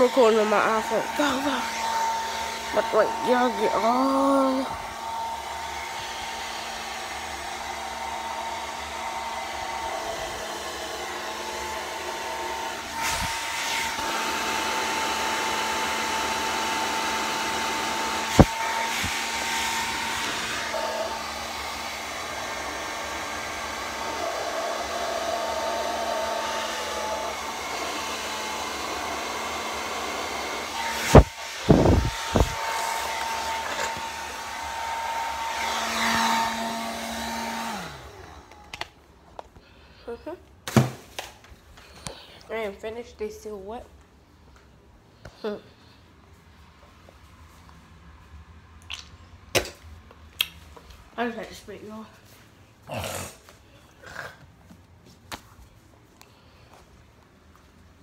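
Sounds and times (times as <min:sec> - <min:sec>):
blow dryer running: 0:00.0 - 0:43.0.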